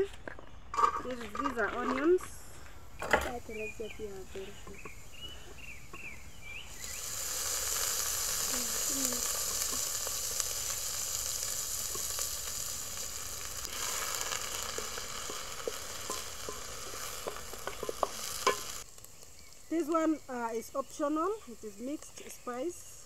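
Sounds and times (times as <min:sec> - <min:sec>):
onions sizzling in oil: 0:00.8 - 0:23.0
wooden spoon stirring in pot: 0:07.5 - 0:21.1.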